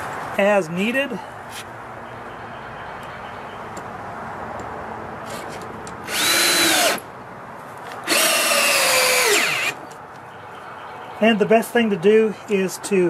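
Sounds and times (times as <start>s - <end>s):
power drill driving screws into wood: 5.4s - 7.0s, 8.0s - 9.8s.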